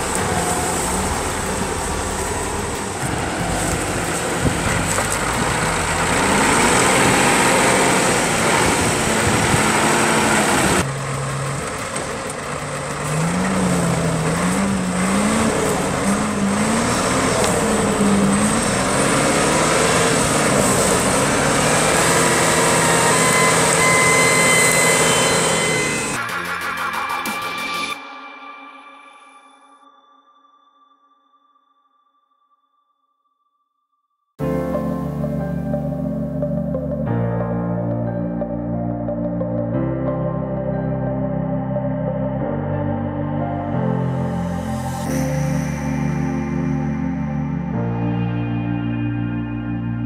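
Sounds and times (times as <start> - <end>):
diesel engine working hard: 0.0 - 26.4.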